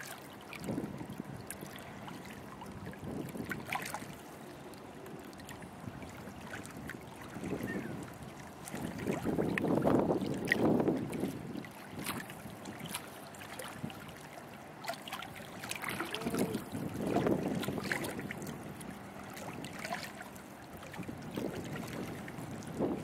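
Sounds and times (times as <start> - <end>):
small waves lapping at shore: 0.0 - 23.0
wind gusting on microphone: 5.8 - 12.5, 15.9 - 18.8, 21.0 - 23.0.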